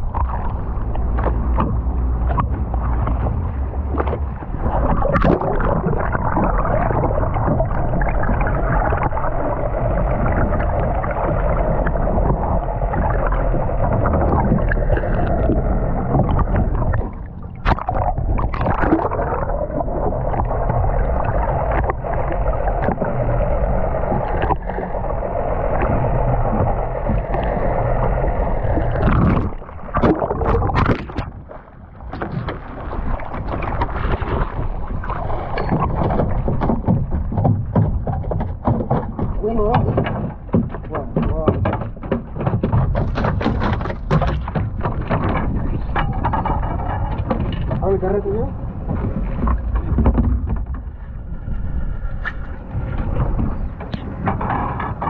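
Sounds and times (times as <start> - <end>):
boat engine running: 0.0 - 55.0
water rushing along hull: 0.0 - 55.0
sharp knocks: 35.6 - 47.9.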